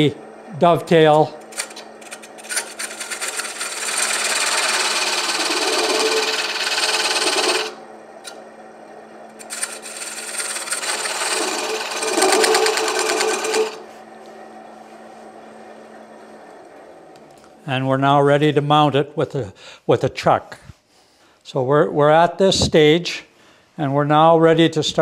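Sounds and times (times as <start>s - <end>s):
lathe motor humming: 0.0s - 17.5s
chisel cutting wood on a lathe: 1.5s - 8.4s, 9.3s - 13.8s.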